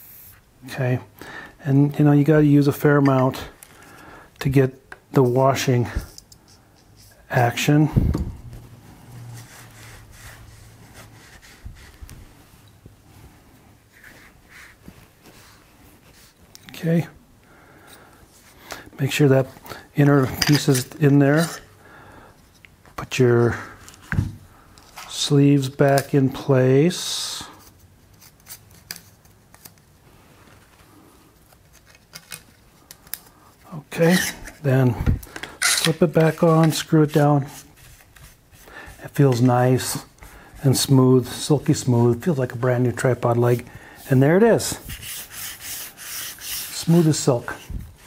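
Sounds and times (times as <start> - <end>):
cloth rubbing metal: 8.4 - 12.6.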